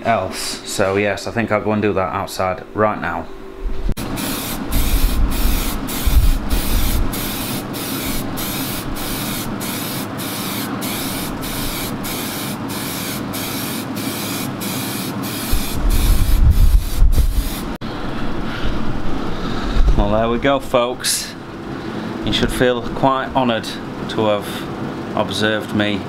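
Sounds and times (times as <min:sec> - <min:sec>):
spray paint can hissing: 0:04.0 - 0:17.8
low rumbling: 0:15.6 - 0:20.6.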